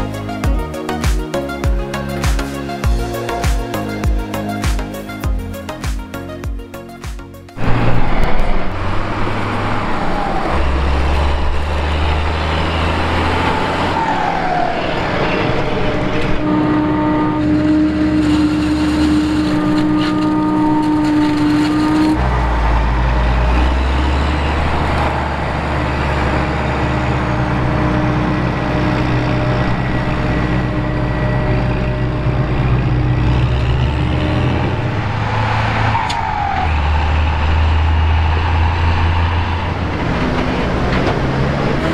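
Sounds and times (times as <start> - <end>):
tractor diesel engines: 0.0 - 41.9
steady whine: 13.9 - 35.2.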